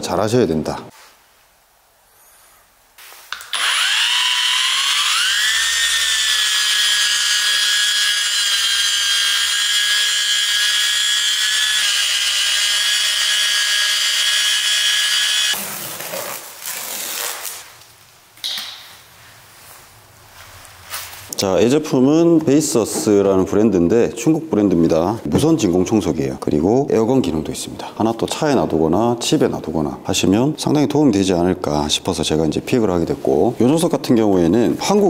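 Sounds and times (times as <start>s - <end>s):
car polisher motor whine: 3.6s - 15.6s.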